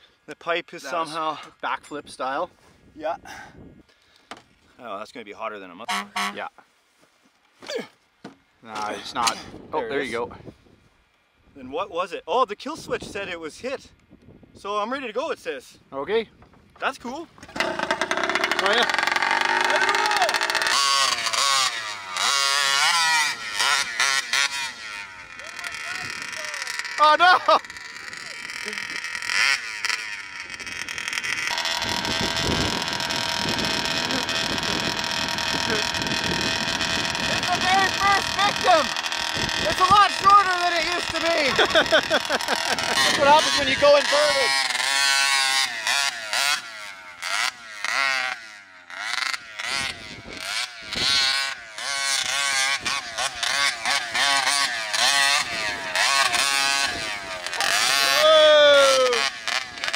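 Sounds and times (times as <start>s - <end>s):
wind buffeting microphone: 14.0s - 14.6s, 30.4s - 40.4s, 49.8s - 51.3s
two-stroke engine idling: 17.4s - 58.4s, 59.0s - 59.9s.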